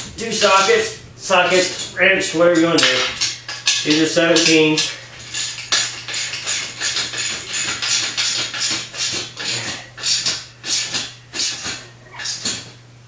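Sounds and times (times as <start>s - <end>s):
hand ratchet clicking: 2.6s - 12.6s.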